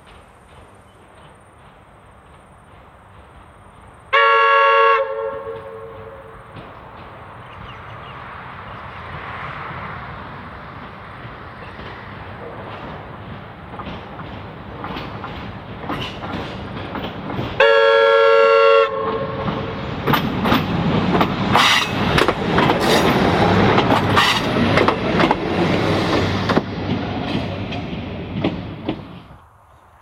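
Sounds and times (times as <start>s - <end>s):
train wheels clicking over rail joints: 0.0s - 4.4s, 5.1s - 18.4s, 19.0s - 29.4s
railcar horn blast: 4.1s - 6.6s, 17.6s - 19.7s.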